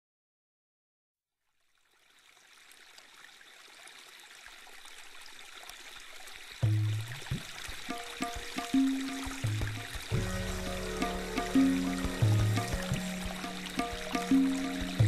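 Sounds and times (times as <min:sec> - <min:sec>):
running water hissing: 0:04.6 - 0:15.0
loud low tone: 0:10.1 - 0:15.0.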